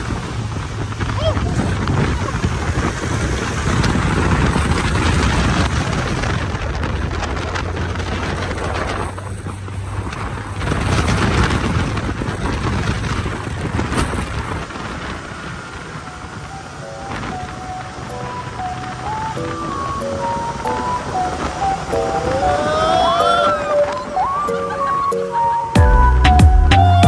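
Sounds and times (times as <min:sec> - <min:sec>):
buggy engine running: 0:00.0 - 0:27.0
wind buffeting microphone: 0:00.0 - 0:27.0.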